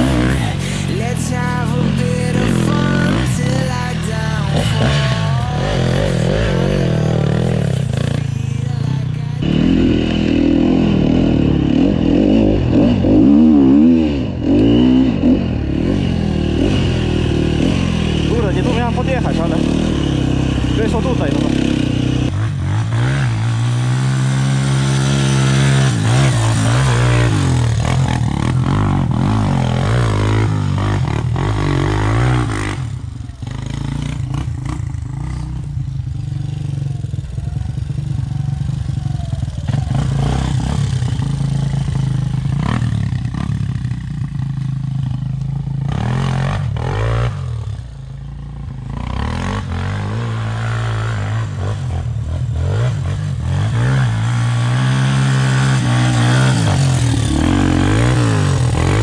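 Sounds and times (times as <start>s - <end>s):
quad engine revving: 0.0s - 59.0s
engine idling: 30.8s - 45.8s.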